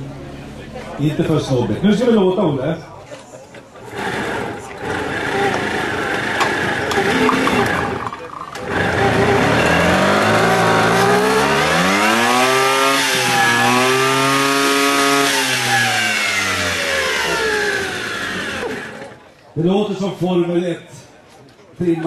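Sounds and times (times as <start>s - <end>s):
moped engine revving hard: 3.8s - 19.2s.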